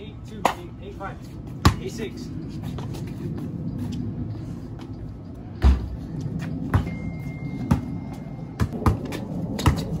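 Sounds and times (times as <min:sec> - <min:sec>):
basketball bouncing on brick: 0:08.6 - 0:10.0.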